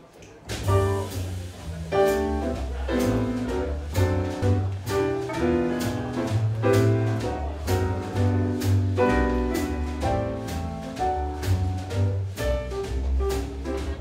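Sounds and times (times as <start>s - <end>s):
swing jazz band playing: 0.5s - 14.0s
running bass line: 0.6s - 14.0s.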